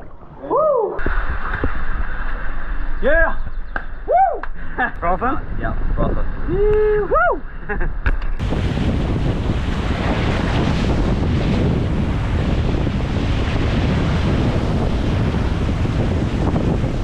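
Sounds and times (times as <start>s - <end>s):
wind buffeting microphone: 0.0s - 7.4s, 8.0s - 17.0s
ocean surf washing against rocks: 8.4s - 17.0s.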